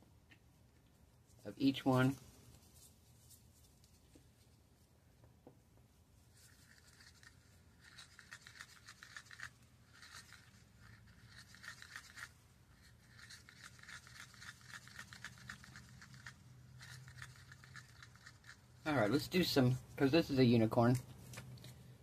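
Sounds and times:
stick scraping inside cup: 0:06.4 - 0:19.8.

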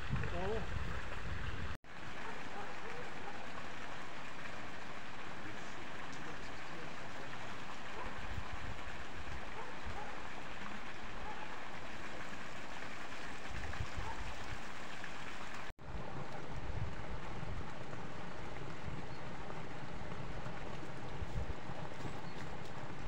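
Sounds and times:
wind rumble on microphone: 0:00.0 - 0:01.8, 0:07.8 - 0:10.0, 0:13.1 - 0:14.6, 0:15.8 - 0:23.0.

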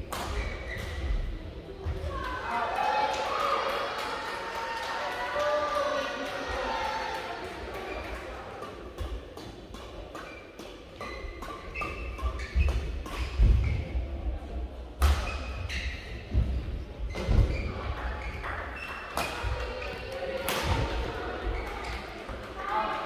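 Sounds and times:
rackets smacking shuttlecock: 0:00.1 - 0:01.2, 0:07.7 - 0:13.9, 0:15.0 - 0:15.6, 0:18.2 - 0:22.6
shoes squeaking on court: 0:10.2 - 0:14.0.

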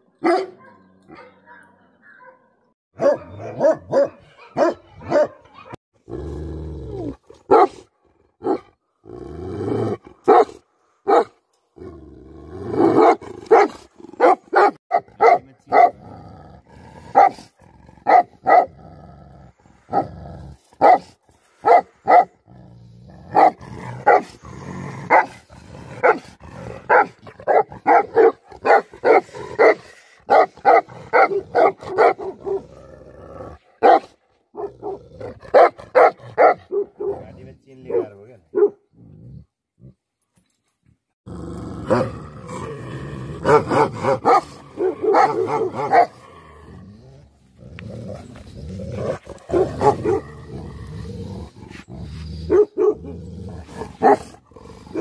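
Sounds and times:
dogs barking deeply: 0:03.0 - 0:05.4, 0:10.0 - 0:11.4, 0:12.7 - 0:16.1, 0:17.0 - 0:18.8, 0:20.8 - 0:22.4, 0:23.2 - 0:32.8, 0:33.8 - 0:38.9, 0:41.8 - 0:46.7, 0:48.9 - 0:50.7, 0:52.5 - 0:55.0.

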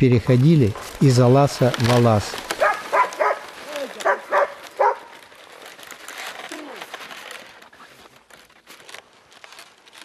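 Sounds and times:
footsteps crunching on snow: 0:00.0 - 0:10.0
sled runners on snow: 0:00.0 - 0:10.0.

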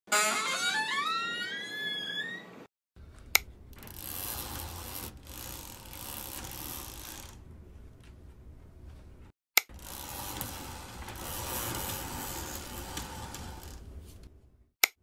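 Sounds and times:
door hinge creaking: 0:00.1 - 0:02.7, 0:03.7 - 0:07.4, 0:09.7 - 0:14.3.

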